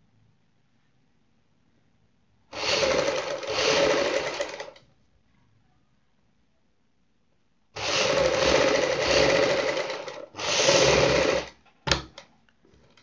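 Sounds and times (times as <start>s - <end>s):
sewing machine stitching: 2.5s - 4.8s, 7.8s - 11.6s.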